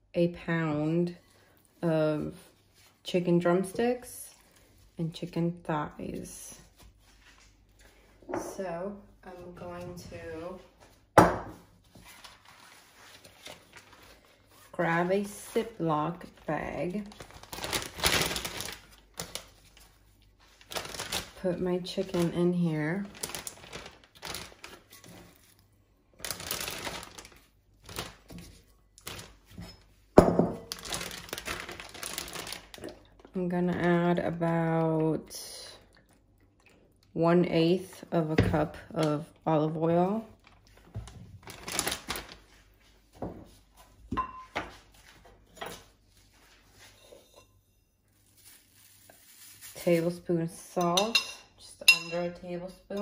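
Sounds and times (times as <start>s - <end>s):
plastic bag crinkling: 16.2s - 29.5s, 30.6s - 33.9s, 40.3s - 42.8s, 48.1s - 50.1s.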